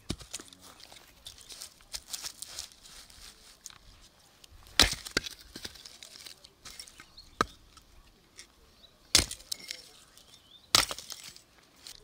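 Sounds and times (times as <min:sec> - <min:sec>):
hatchet splitting log: 0:04.7 - 0:07.9, 0:09.1 - 0:10.0, 0:10.7 - 0:12.0.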